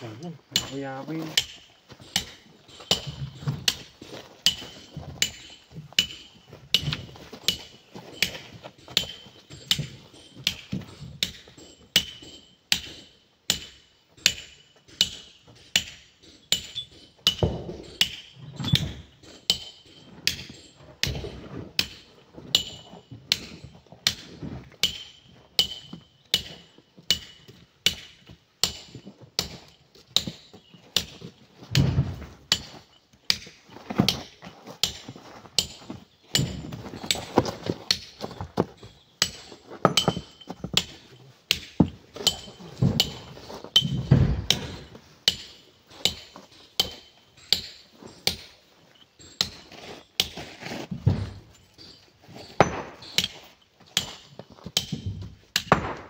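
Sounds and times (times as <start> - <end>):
hammer striking steel chisel: 0.6 - 56.0
dull deep thuds: 31.7 - 32.8, 41.7 - 45.0, 50.9 - 51.6.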